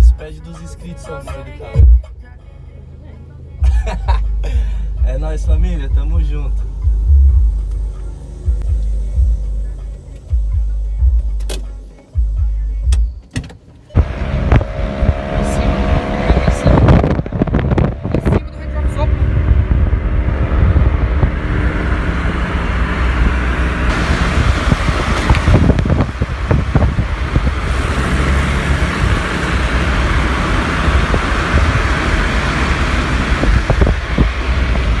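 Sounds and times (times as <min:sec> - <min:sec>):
car engine and road noise: 0:00.0 - 0:35.0
wind buffeting microphone: 0:14.0 - 0:29.4, 0:30.7 - 0:35.0.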